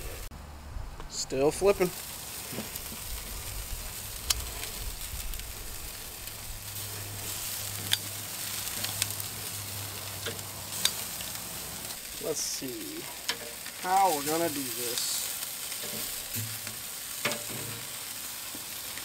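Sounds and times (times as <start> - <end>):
meat sizzling on a grill: 1.1 - 19.0
metal tongs clicking on grate: 7.8 - 8.0, 10.2 - 11.0, 17.2 - 17.8.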